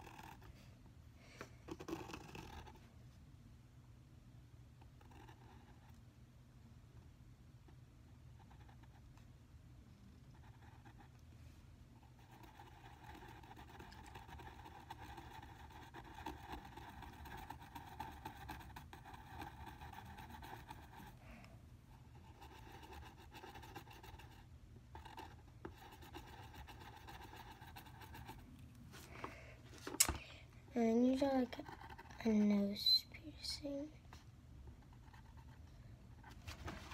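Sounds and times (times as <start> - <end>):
pencil scratching on paper: 0.0 - 0.5, 1.7 - 2.9, 4.9 - 6.0, 8.4 - 9.0, 10.3 - 11.2, 12.0 - 21.2, 21.9 - 28.4, 30.8 - 33.0, 34.7 - 35.6.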